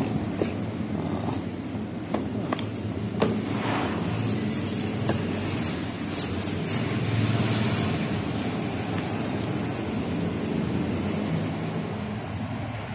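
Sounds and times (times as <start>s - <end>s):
low hum and hiss: 0.0s - 12.9s
plastic wrapping crinkling: 4.1s - 9.8s.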